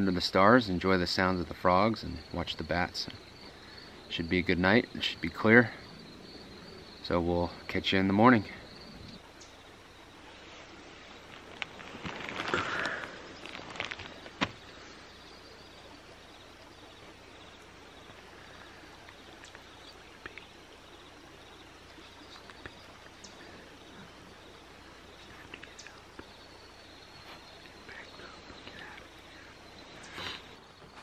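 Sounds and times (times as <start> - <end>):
faint ticks: 9.0 - 9.6, 11.2 - 15.4, 17.4 - 20.6, 21.8 - 24.1, 25.1 - 31.0
rustling of nylon sleeping bags: 10.2 - 15.2.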